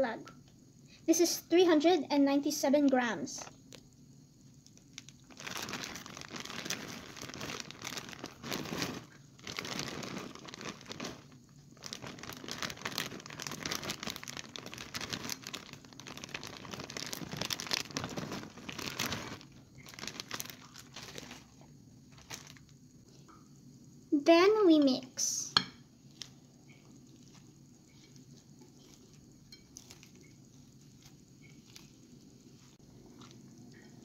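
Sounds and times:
plastic bag crinkling: 0:04.6 - 0:22.7.

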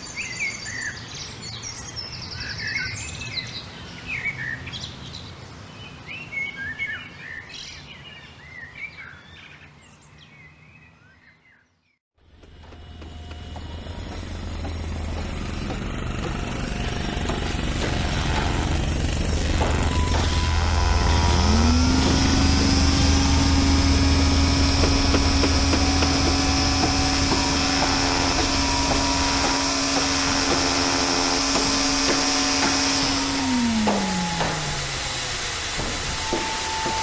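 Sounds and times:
low engine rumble: 0:12.2 - 0:37.0
motor spinning: 0:12.3 - 0:37.0
knocks: 0:24.7 - 0:37.0.

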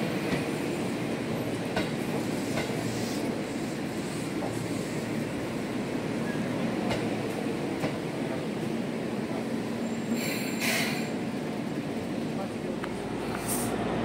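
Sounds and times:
train rumbling: 0:00.0 - 0:14.0
high-pitched hiss and squeal: 0:09.8 - 0:11.2.

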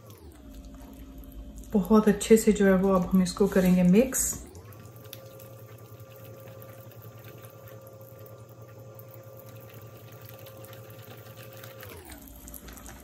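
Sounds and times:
steady hum: 0:00.0 - 0:13.0
whisk beating batter in glass bowl: 0:01.7 - 0:12.0.

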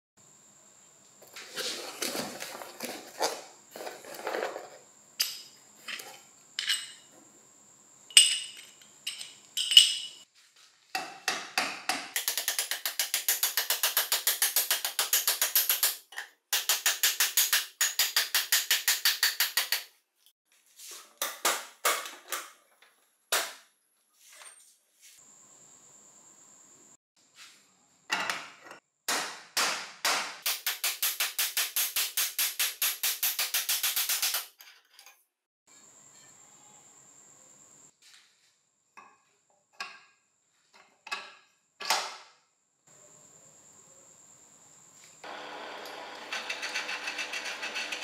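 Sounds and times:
metal clinks: 0:08.1 - 0:10.2.

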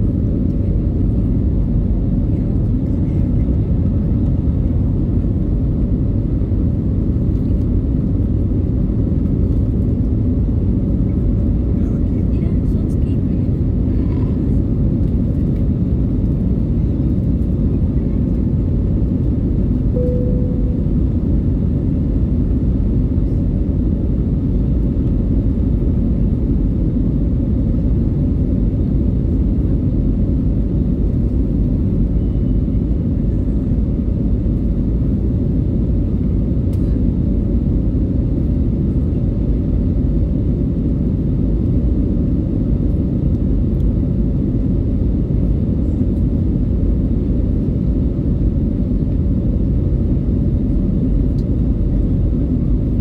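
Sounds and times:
airplane engines rumbling: 0:00.0 - 0:53.0
short cabin tone: 0:20.0 - 0:21.3.

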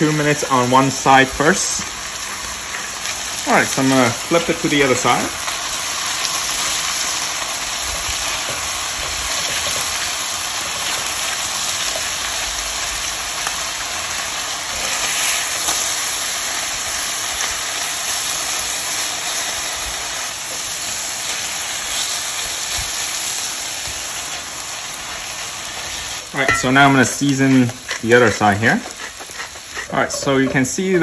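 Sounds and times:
liver frying in oil: 0:00.0 - 0:31.0.

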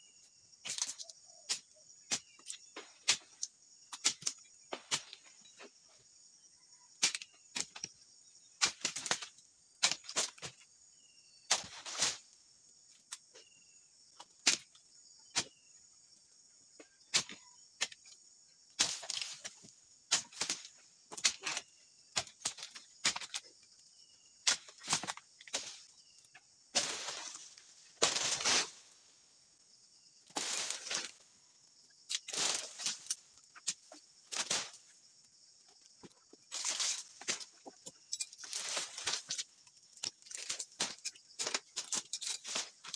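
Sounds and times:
chisel chopping into palm fronds: 0:11.5 - 0:12.2
rustling crashes of fronds: 0:26.7 - 0:28.9, 0:30.3 - 0:31.2, 0:32.2 - 0:33.2, 0:34.3 - 0:34.9.

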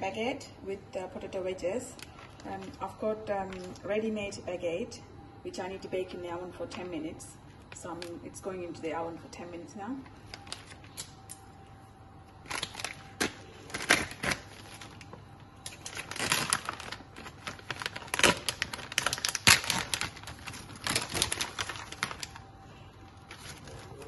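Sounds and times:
plastic bag crinkling: 0:01.9 - 0:03.9, 0:10.1 - 0:11.2, 0:12.4 - 0:24.0.

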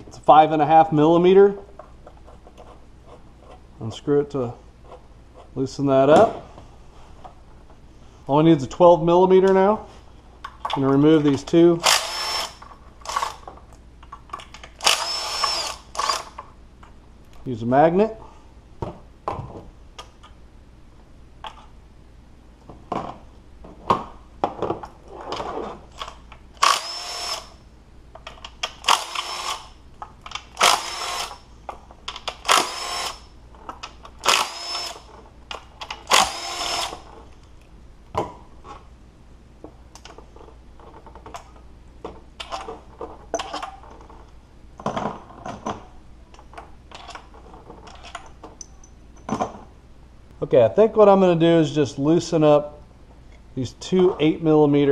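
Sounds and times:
cordless power tool bursts: 0:11.8 - 0:13.4, 0:14.8 - 0:16.4, 0:26.6 - 0:27.6, 0:28.8 - 0:29.8, 0:30.6 - 0:31.4, 0:32.4 - 0:33.2, 0:34.2 - 0:35.1, 0:36.1 - 0:37.1.

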